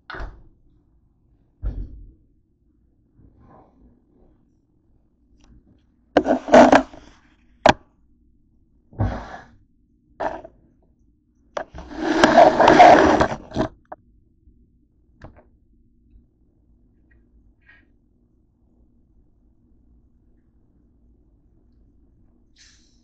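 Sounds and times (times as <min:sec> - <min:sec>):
objects scraping on wooden tabletop: 0:06.2 - 0:07.1, 0:10.2 - 0:10.5, 0:11.6 - 0:14.0
scraping rustle: 0:06.2 - 0:07.2, 0:10.2 - 0:10.5, 0:11.6 - 0:13.8.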